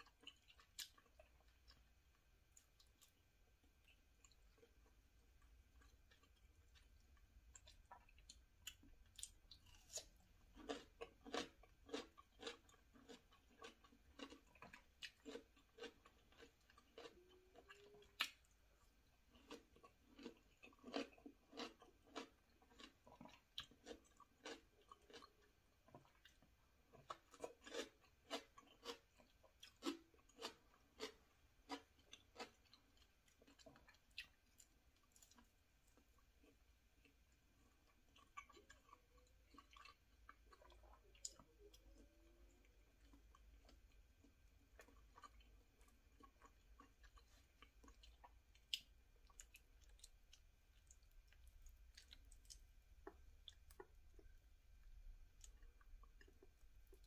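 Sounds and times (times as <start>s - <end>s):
chewing crisp vegetables: 0.0s - 57.0s.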